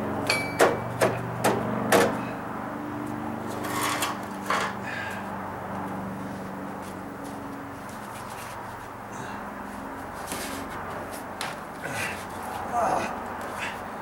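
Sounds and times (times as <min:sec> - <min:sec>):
steady low hum: 0:00.0 - 0:14.0
sharp knocks: 0:00.3 - 0:02.2.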